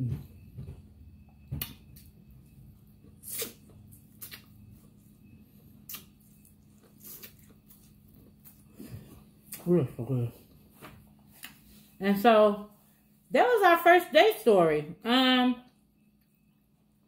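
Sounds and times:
person biting and chewing: 3.0s - 4.6s, 5.8s - 8.7s
wet mouth clicks and smacks: 3.2s - 3.6s, 4.2s - 4.5s, 5.9s - 6.1s.

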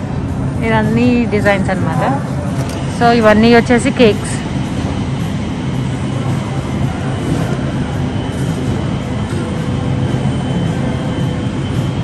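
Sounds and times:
faint steady whines: 0.0s - 12.0s.

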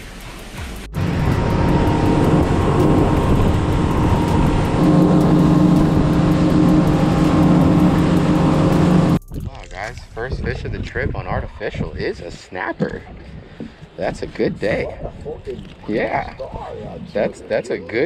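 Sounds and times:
outboard motor drone: 0.9s - 10.0s
wind and water rushing: 1.0s - 9.2s.

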